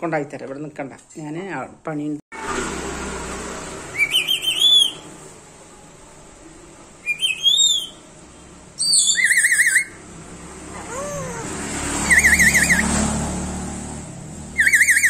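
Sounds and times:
vehicle passing on road: 0:02.3 - 0:07.2, 0:08.0 - 0:15.0
parrot whistling trills: 0:03.9 - 0:05.1, 0:07.0 - 0:08.0, 0:08.8 - 0:10.0, 0:12.0 - 0:12.9, 0:14.6 - 0:15.0.

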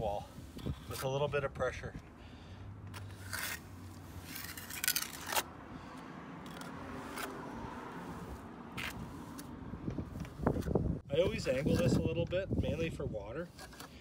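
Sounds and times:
trowel scraping wet cement: 0:02.9 - 0:05.5, 0:06.4 - 0:09.5, 0:11.3 - 0:14.0.

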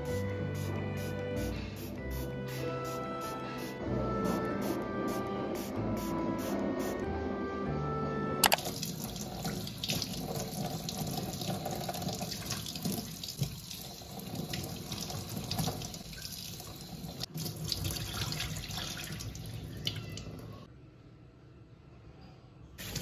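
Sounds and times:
tap water running into sink: 0:08.4 - 0:20.0.

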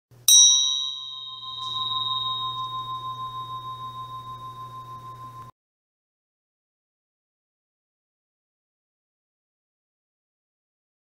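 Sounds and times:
low steady hum: 0:00.2 - 0:05.5
bright bell-like chime: 0:00.3 - 0:05.5.

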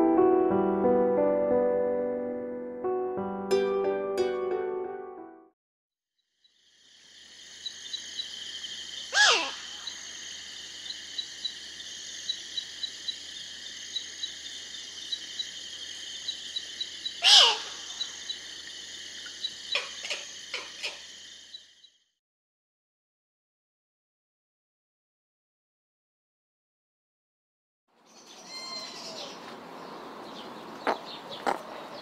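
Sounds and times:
insect chorus chirping: 0:06.2 - 0:22.0
bird calls sweeping downward: 0:09.0 - 0:10.0, 0:28.2 - 0:29.5.

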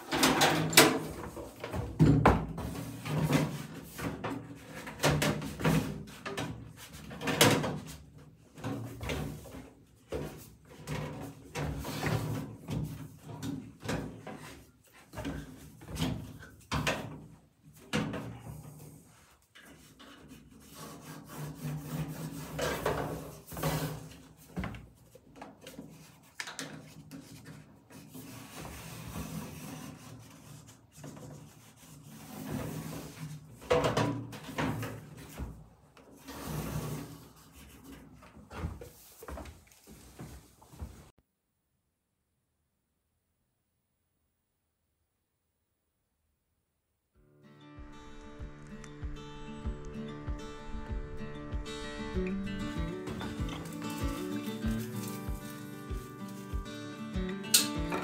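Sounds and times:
pencil scratching: 0:19.8 - 0:22.6, 0:53.4 - 0:56.5
metal tub knocking on wood: 0:57.6 - 0:58.0.

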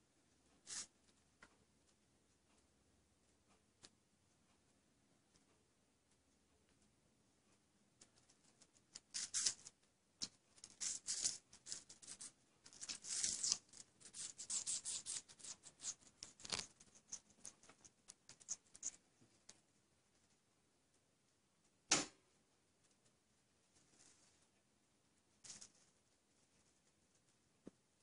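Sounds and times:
parakeet crunching food: 0:08.0 - 0:19.6.

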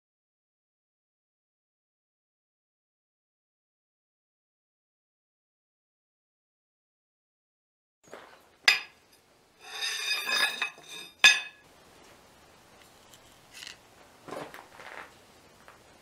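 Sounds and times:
steel bar clanking on anvil: 0:08.7 - 0:09.0, 0:09.6 - 0:11.6
metal ringing and scraping: 0:08.7 - 0:11.6
quiet handling sounds: 0:11.9 - 0:16.0.

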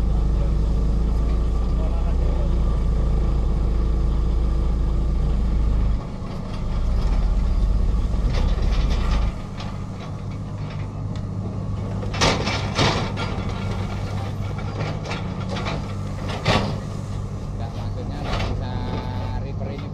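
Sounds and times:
excavator diesel engine drone: 0:00.0 - 0:19.9
vibrating ripper low hum: 0:06.6 - 0:10.4.

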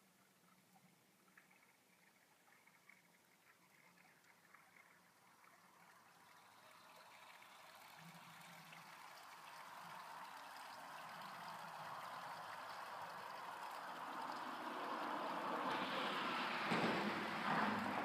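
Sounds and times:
vehicle tyre noise: 0:09.7 - 0:18.0.

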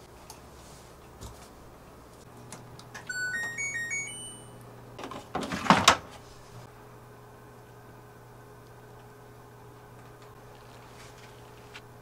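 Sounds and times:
washing machine beep chime: 0:03.0 - 0:04.6.

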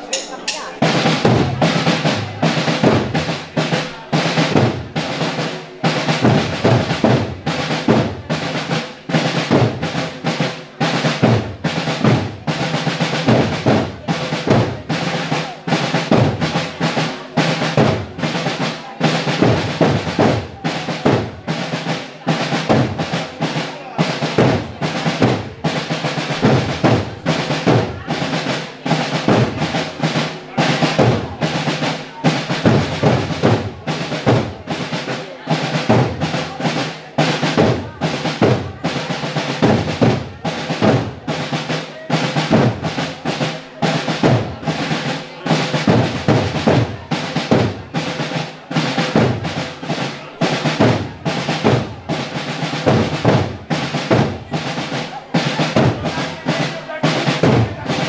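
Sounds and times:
snare and bass drums marching: 0:00.0 - 0:58.0.

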